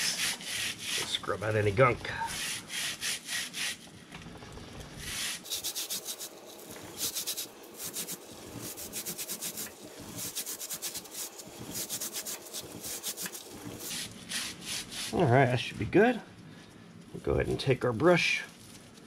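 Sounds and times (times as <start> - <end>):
brush scrubbing a chain: 5.0 - 15.2.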